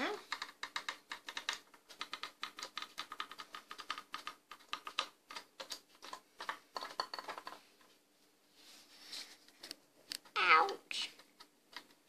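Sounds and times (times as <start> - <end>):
rapid irregular clicking: 0.2 - 8.0, 11.0 - 12.0.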